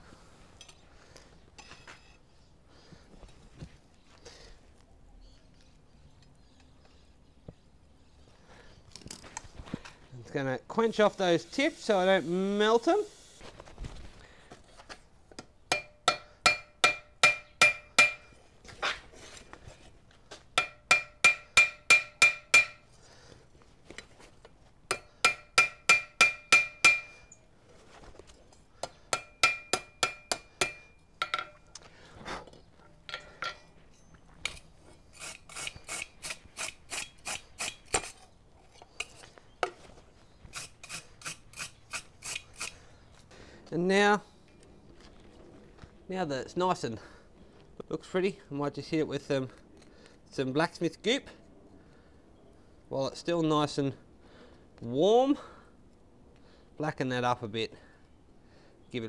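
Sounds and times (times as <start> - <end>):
wire brush scrubbing metal: 11.2 - 13.4, 35.1 - 38.2
hammer striking steel on anvil: 15.7 - 18.3, 20.6 - 22.8, 24.9 - 27.2, 28.8 - 31.6.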